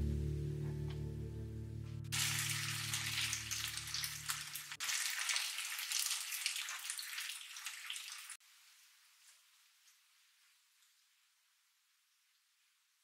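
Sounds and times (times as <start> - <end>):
food sizzling in hot oil: 2.1 - 8.4.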